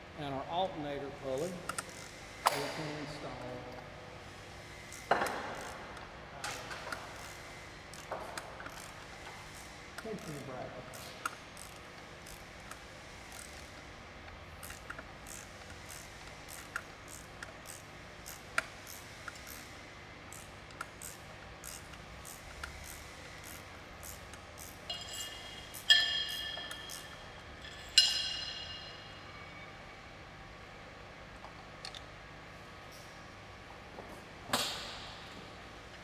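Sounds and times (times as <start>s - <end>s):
wrench clicking: 10.2s - 13.8s, 14.6s - 19.7s, 20.3s - 29.0s
metal tools clinking: 24.8s - 29.7s.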